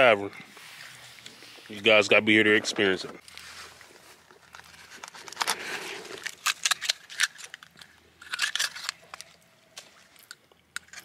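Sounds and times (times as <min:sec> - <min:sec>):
knife clicking and scraping shell: 0:06.2 - 0:09.3.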